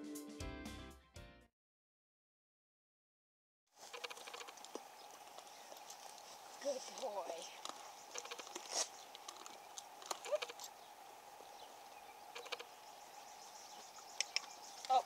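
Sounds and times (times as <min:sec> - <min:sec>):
light steady hiss: 0:03.8 - 0:15.0.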